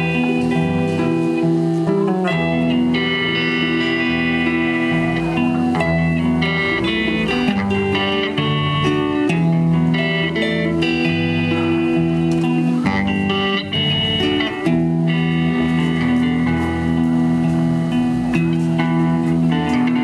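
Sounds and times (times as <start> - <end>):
electric bass: 0.0 - 20.0
electric guitars: 0.0 - 20.0.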